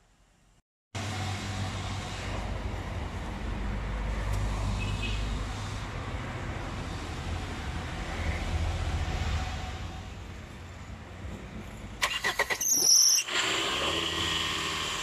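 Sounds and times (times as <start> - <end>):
engine running: 13.2 - 15.0.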